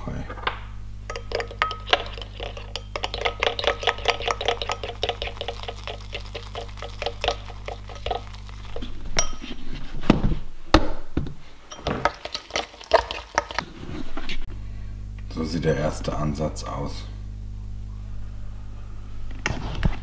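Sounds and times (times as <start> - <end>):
spoon scraping glass bowl: 1.1 - 9.8, 11.7 - 13.7.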